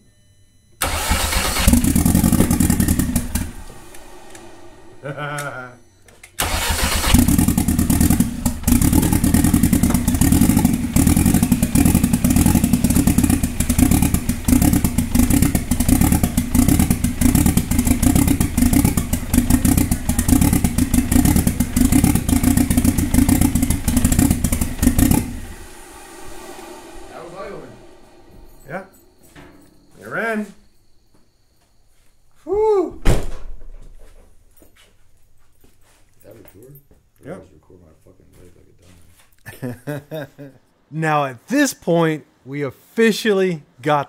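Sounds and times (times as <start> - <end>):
car engine running rough: 0.8 - 5.7, 6.4 - 29.6.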